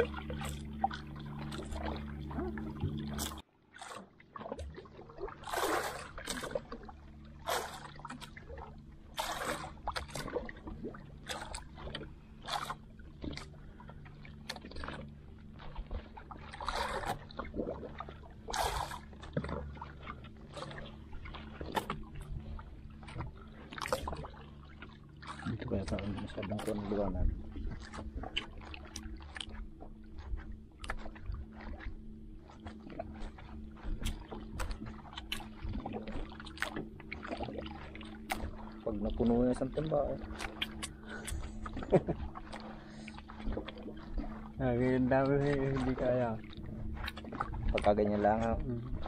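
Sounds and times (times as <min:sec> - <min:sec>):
small boat engine humming: 0:00.0 - 0:49.0
water splashes: 0:00.0 - 0:49.0.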